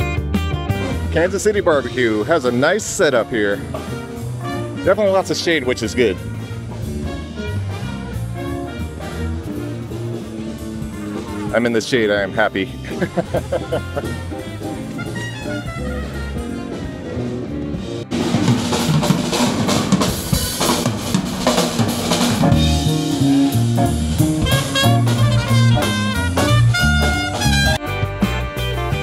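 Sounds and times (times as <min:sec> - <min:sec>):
saxophone: 0:00.0 - 0:02.5, 0:03.1 - 0:11.6, 0:12.2 - 0:18.2, 0:22.1 - 0:29.0
drum kit: 0:00.0 - 0:29.0
music: 0:00.0 - 0:29.0
trumpet: 0:00.8 - 0:12.5, 0:13.9 - 0:29.0
electric guitar: 0:12.8 - 0:29.0.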